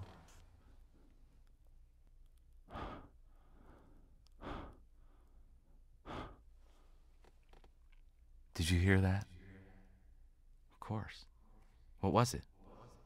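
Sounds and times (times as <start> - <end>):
breathy exhalations: 2.7 - 5.3, 6.0 - 7.0.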